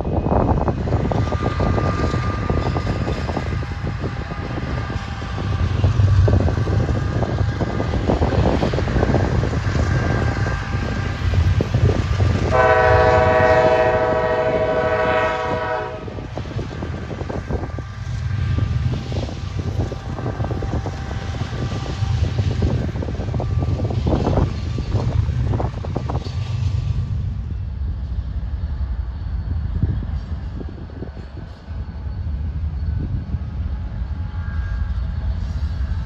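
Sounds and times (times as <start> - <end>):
diesel locomotive engine rumble: 0.0 - 36.0
train air horn chord: 12.5 - 16.2.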